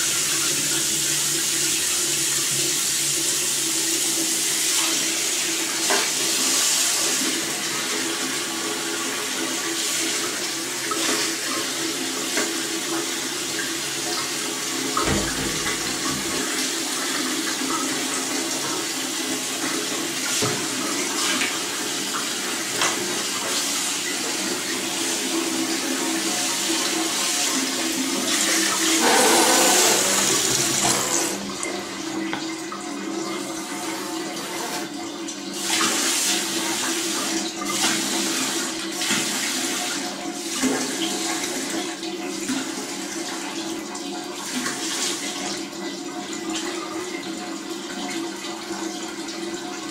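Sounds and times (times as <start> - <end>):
tap water splashing into basin: 4.8 - 6.5, 12.3 - 24.1, 28.3 - 33.8.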